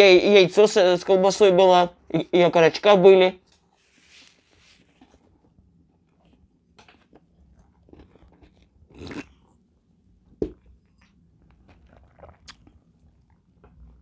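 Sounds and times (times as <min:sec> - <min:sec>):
faint chewing: 0:04.8 - 0:14.0.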